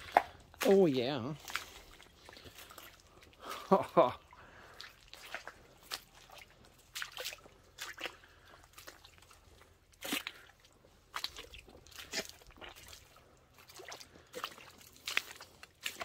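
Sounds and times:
footsteps squelching in wet ground: 0.0s - 16.0s.

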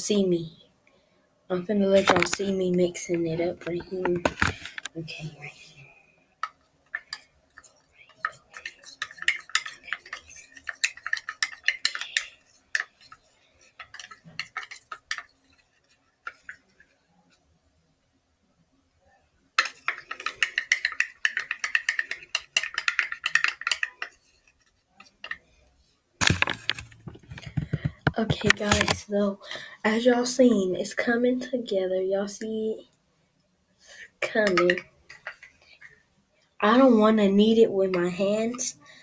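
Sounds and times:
toothbrush scraping a bottle cap: 7.0s - 15.6s, 19.6s - 24.3s.

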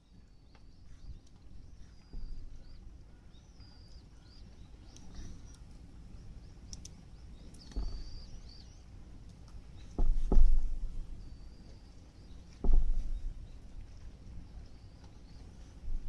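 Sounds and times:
knife knocking on wooden board: 10.0s - 10.8s, 12.6s - 13.2s.

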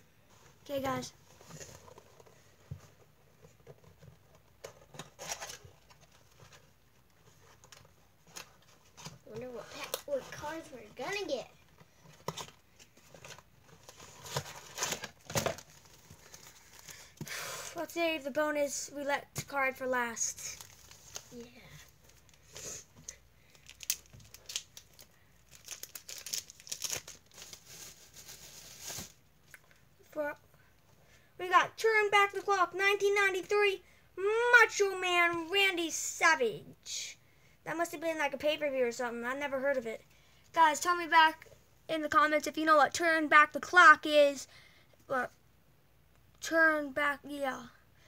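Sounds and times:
wrapper tearing and crinkling: 13.2s - 17.0s, 20.4s - 21.4s, 23.5s - 29.2s.

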